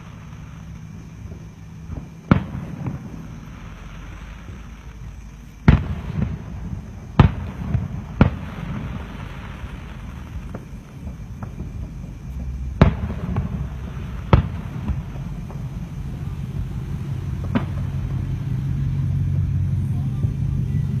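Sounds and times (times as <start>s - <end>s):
small firework pops: 0.0s - 19.1s
fireworks bangs: 0.0s - 21.0s
low rumble: 0.0s - 21.0s.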